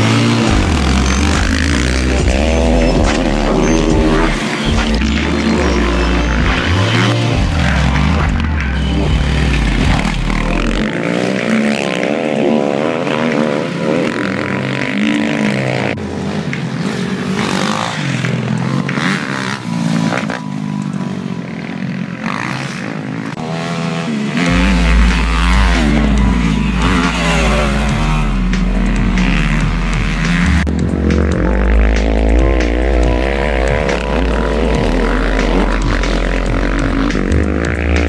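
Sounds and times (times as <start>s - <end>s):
dirt bike engines revving: 0.0s - 38.0s.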